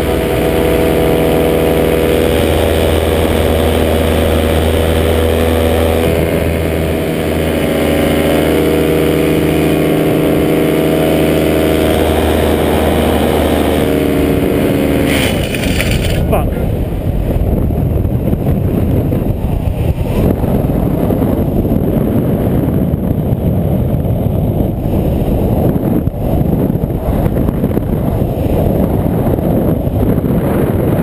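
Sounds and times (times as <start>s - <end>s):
small two-stroke engine running: 0.0s - 16.9s.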